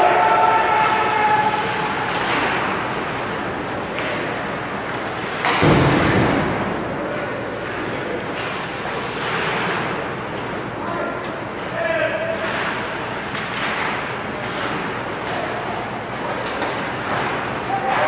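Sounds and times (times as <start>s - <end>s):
ice hockey play on ice: 0.0s - 18.0s
sudden thud: 5.5s - 6.8s.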